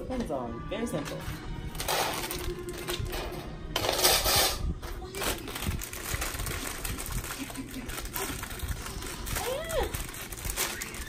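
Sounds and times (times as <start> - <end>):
metal wire baskets rattling: 1.1 - 4.6.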